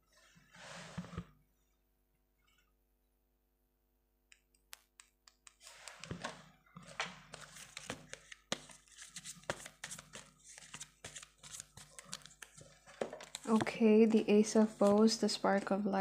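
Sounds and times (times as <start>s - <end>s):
cards being shuffled: 5.4s - 13.8s.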